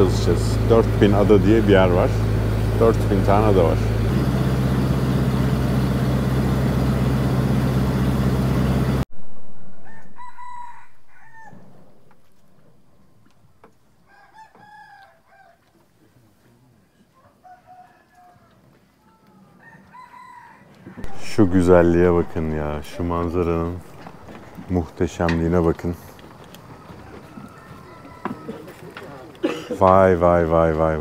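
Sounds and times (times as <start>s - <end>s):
boat engine humming: 0.0s - 9.0s, 21.0s - 28.6s
roosters crowing: 9.6s - 15.9s, 17.0s - 29.7s.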